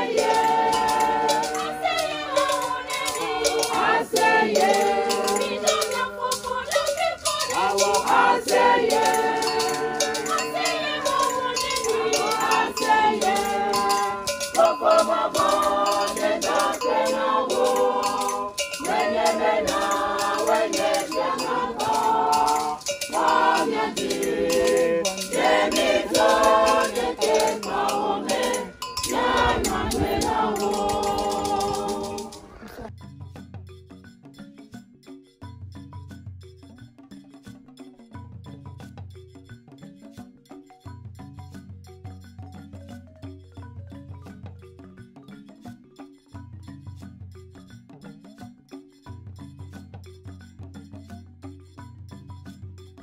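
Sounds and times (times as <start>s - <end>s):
group singing in harmony: 0.0s - 32.9s
rattle shaken: 0.0s - 53.0s.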